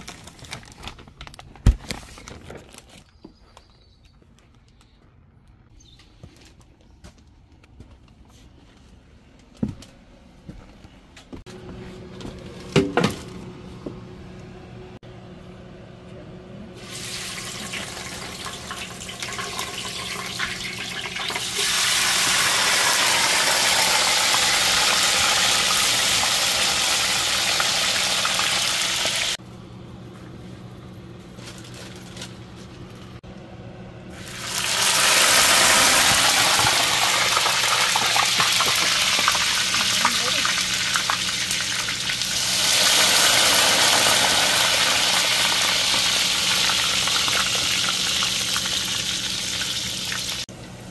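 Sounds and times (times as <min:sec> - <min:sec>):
fries sizzling in hot oil: 0:16.8 - 0:29.4, 0:34.1 - 0:50.5.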